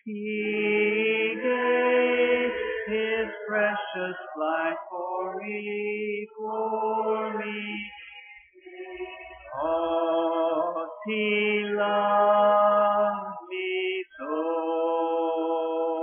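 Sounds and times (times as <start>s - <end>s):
congregation singing a hymn: 0.1s - 16.0s.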